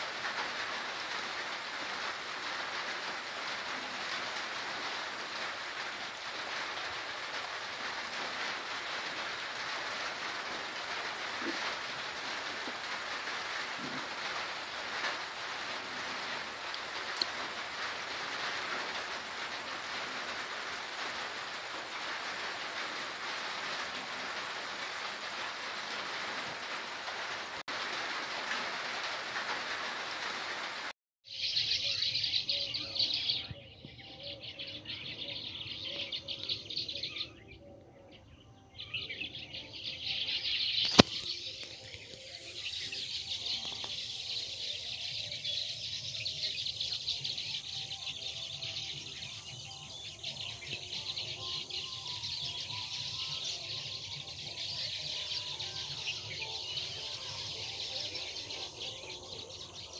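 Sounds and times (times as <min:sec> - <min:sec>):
birds chirping in chorus: 0:31.3 - 0:59.9.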